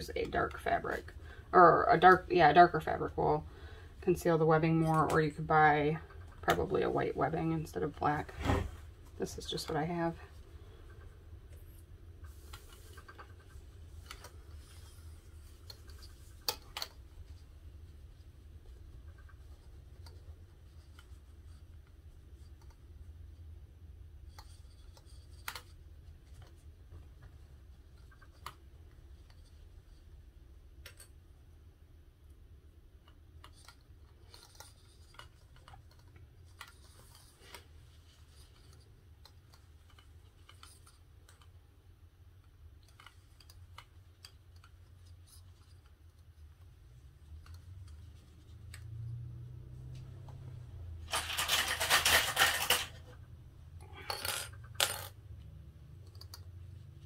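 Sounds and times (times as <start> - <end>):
low steady hum: 0.0 - 57.0
fabric rubbing and rustling: 8.1 - 9.2.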